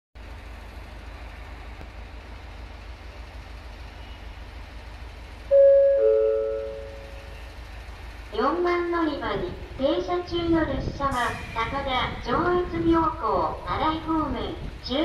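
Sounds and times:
low hum and rumble: 0.2s - 15.0s
two-note falling chime: 5.5s - 7.3s.

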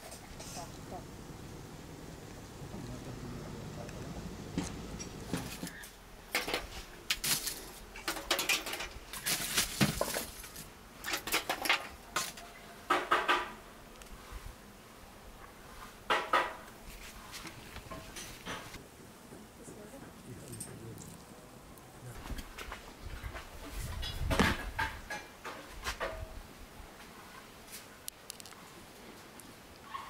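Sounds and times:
charcoal dropped onto grate: 5.3s - 12.4s
metal tongs clinking on buckets: 7.2s - 9.4s.

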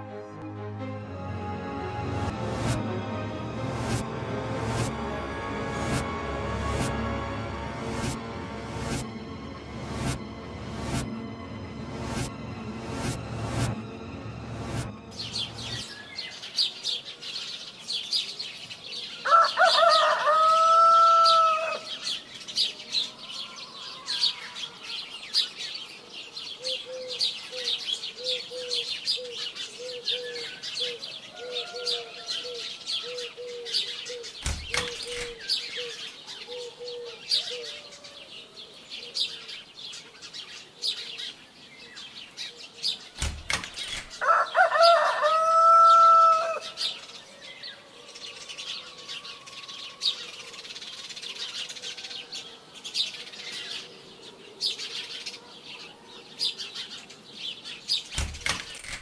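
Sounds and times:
low repeated bird notes: 1.2s - 16.5s, 33.0s - 37.2s
rooster crowing: 19.2s - 22.0s, 31.3s - 33.2s, 44.1s - 47.0s, 47.8s - 50.5s
thump: 34.4s - 35.4s, 43.2s - 44.2s.

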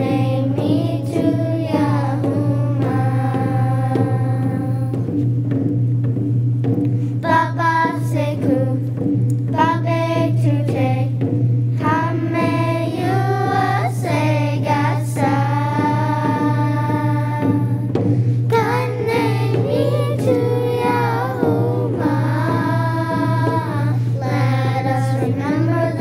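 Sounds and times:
children singing: 0.0s - 5.0s, 11.8s - 17.9s, 18.5s - 26.0s
low musical accompaniment: 0.0s - 26.0s.

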